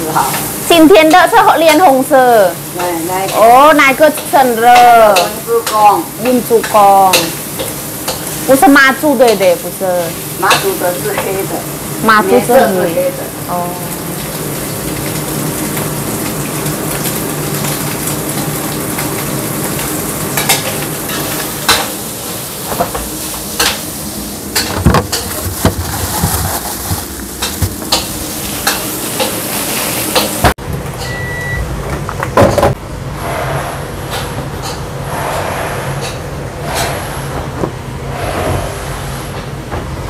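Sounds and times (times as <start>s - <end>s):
food sizzling in a wok: 0.0s - 31.3s
short electronic beep: 31.0s - 31.6s.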